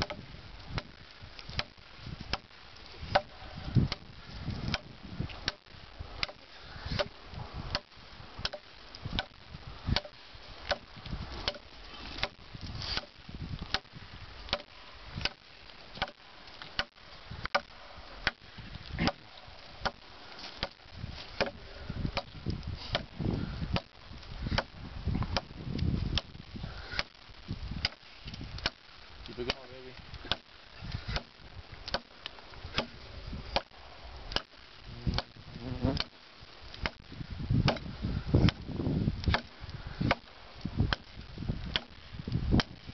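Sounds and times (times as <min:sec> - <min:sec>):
knife chopping wood: 0:06.2 - 0:08.6, 0:19.0 - 0:20.8, 0:21.4 - 0:21.6, 0:22.9 - 0:23.1, 0:31.1 - 0:31.3, 0:37.7 - 0:38.6, 0:41.7 - 0:41.9.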